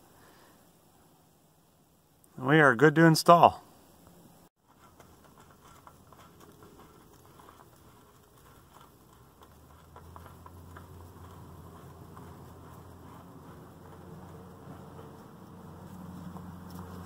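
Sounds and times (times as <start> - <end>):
fingers turning oil filter: 4.6 - 17.0
low hum: 4.8 - 17.0.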